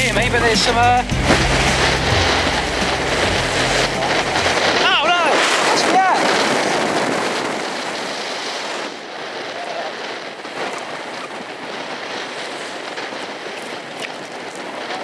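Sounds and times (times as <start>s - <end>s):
wind and water rushing: 0.1s - 15.0s.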